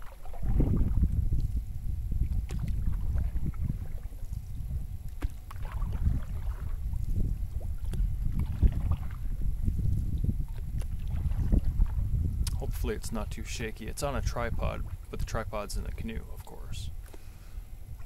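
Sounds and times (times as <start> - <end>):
paddle swishing water: 0.0 - 12.4, 14.7 - 15.3
steady low rumble: 0.0 - 18.0
paddle knocking hull: 5.1 - 9.4.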